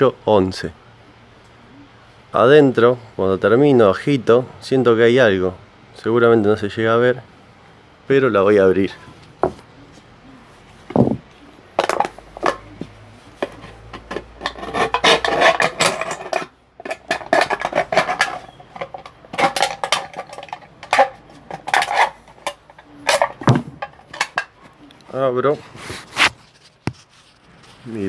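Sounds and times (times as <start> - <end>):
aluminium can crumpling: 13.5 - 24.5.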